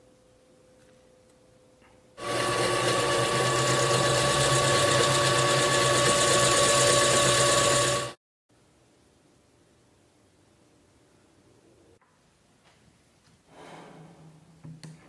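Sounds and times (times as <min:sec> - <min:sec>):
drill press boring into wood: 0:02.2 - 0:08.2.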